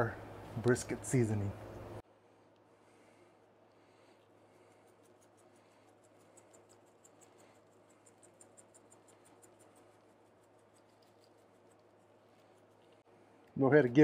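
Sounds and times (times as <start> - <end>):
shaker bottle ticking: 4.7 - 13.0.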